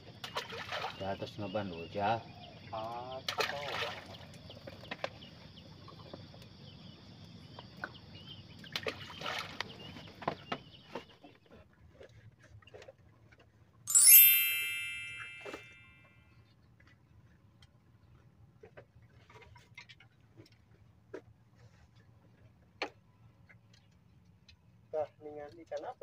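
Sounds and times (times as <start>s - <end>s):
sharp metallic ding: 13.9s - 15.9s.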